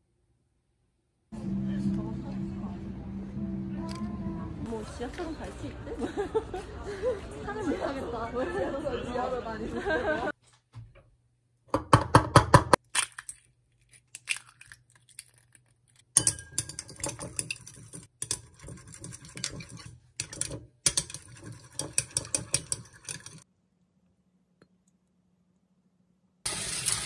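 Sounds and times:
chopsticks beating eggs in bowl: 0:16.2 - 0:23.5.

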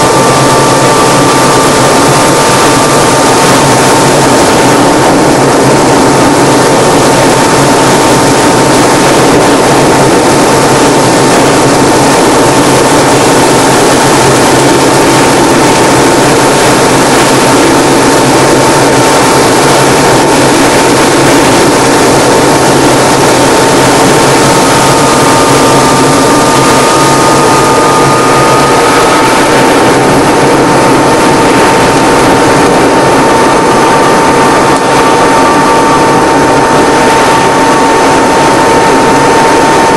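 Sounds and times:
constant high whine: 0:00.0 - 0:39.9
propeller aircraft engine drone: 0:00.0 - 0:39.9.

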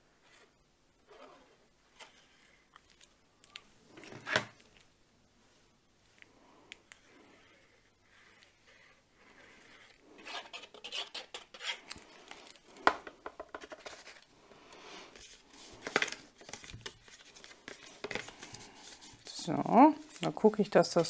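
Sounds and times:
cardstock rustling and scraping: 0:08.1 - 0:12.6, 0:13.5 - 0:14.3, 0:15.1 - 0:21.0.

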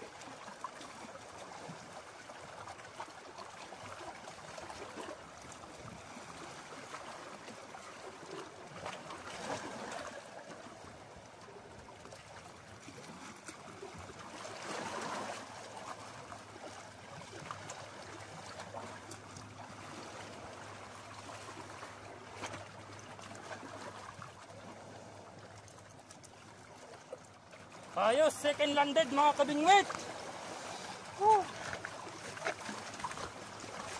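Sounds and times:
waves lapping against rocks: 0:00.0 - 0:33.9.

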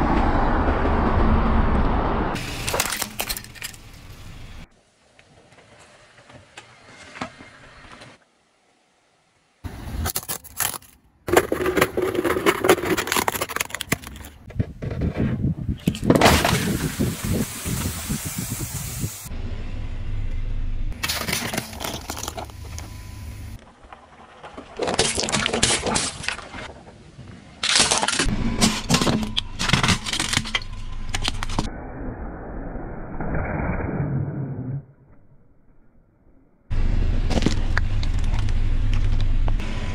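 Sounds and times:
car tyre crushing objects: 0:09.8 - 0:14.6, 0:21.0 - 0:31.7
plastic cups cracking: 0:10.1 - 0:14.4, 0:21.0 - 0:22.8
cracks and crunches: 0:27.6 - 0:28.3.

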